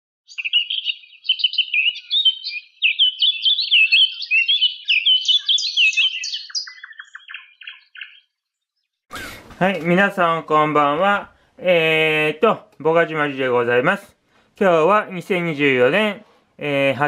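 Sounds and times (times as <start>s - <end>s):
songbird twittering: 0.3s - 9.4s.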